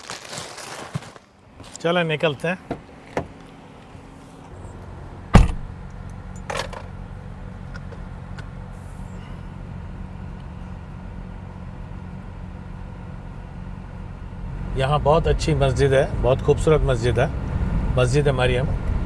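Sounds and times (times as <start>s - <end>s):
car engine low hum: 1.2s - 19.0s
car door shutting thump: 2.7s - 3.4s, 5.3s - 5.7s.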